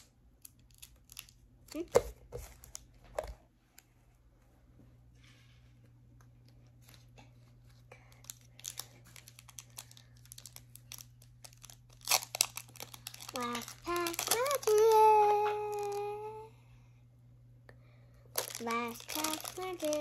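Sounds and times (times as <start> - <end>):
foil pack crinkling: 0.0 - 2.9, 7.9 - 16.3, 18.3 - 20.0.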